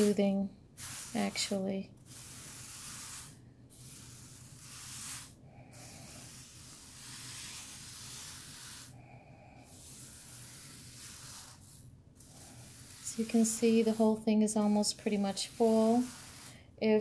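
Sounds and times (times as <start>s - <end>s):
rhinestones swishing and rattling: 12.3s - 16.4s.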